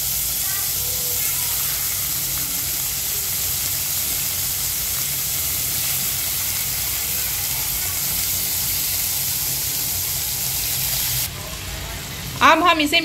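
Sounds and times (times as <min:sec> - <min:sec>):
chicken sizzling in frying pan: 0:00.0 - 0:13.0.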